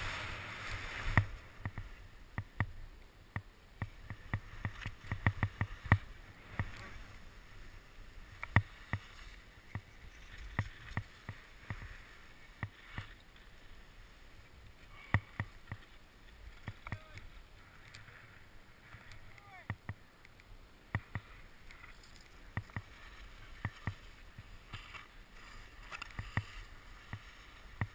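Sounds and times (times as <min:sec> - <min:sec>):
skis scraping over snow: 0:00.0 - 0:02.1, 0:03.9 - 0:19.3, 0:21.0 - 0:27.9
skis and poles clacking: 0:03.8 - 0:07.2, 0:08.3 - 0:13.7, 0:14.9 - 0:20.0, 0:21.0 - 0:27.9.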